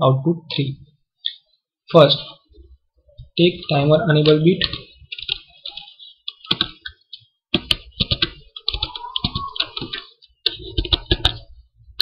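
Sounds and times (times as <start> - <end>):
computer keyboard typing: 4.2 - 12.0.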